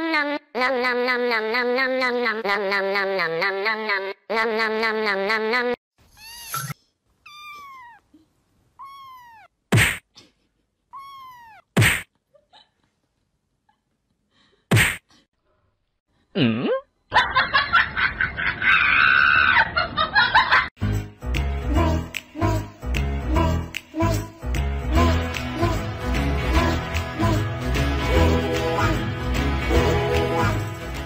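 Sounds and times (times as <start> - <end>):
kitten mewing: 6.1 - 8.1, 8.8 - 10.0, 10.9 - 12.0.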